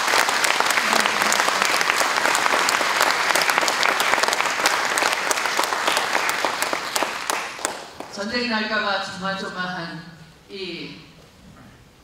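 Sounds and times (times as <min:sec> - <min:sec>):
large audience applauding: 0:00.0 - 0:08.2.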